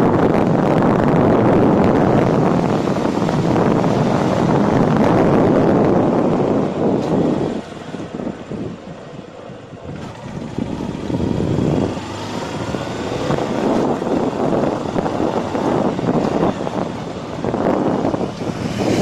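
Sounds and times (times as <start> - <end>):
road and engine noise: 0.0 - 19.0
wind buffeting microphone: 0.0 - 19.0.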